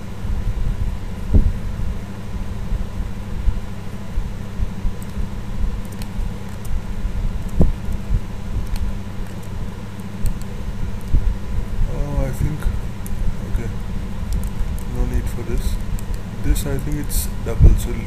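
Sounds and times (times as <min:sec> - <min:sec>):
low room hum: 0:00.0 - 0:18.0.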